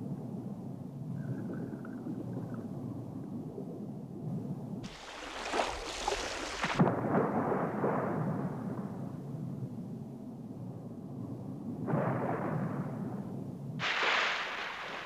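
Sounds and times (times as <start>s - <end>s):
churning bubbling water: 4.8s - 6.8s
splash into water: 4.8s - 7.0s, 13.8s - 15.0s.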